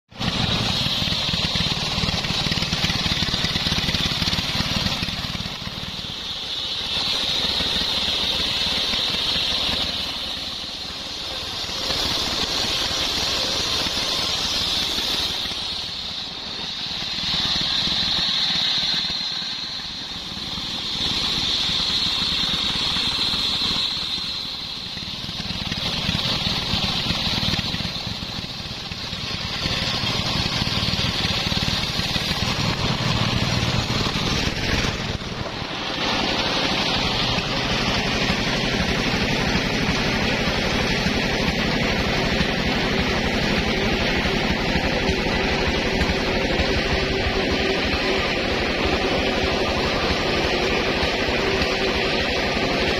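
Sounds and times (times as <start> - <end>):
engine running steadily: 0.0 - 52.9
circular saw whining through wood: 0.1 - 52.9.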